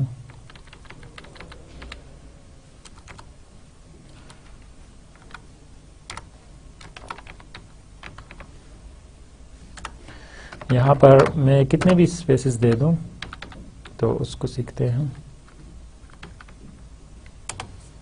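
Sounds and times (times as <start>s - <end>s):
faint keyboard keys clicking: 12.7s - 14.0s.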